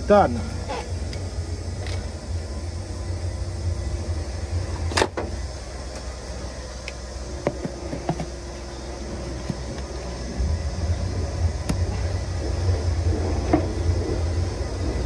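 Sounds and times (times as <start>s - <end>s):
air-line couplings clicking and knocking: 0.0s - 2.4s, 4.7s - 10.4s, 11.5s - 15.0s
steady low rumble: 0.0s - 15.0s.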